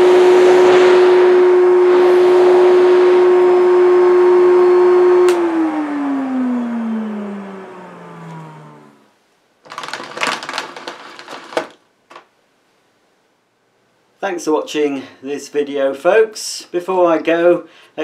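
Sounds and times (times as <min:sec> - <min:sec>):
vacuum cleaner whining: 0:00.0 - 0:09.0, 0:09.7 - 0:11.8
handling rustles: 0:09.6 - 0:12.3.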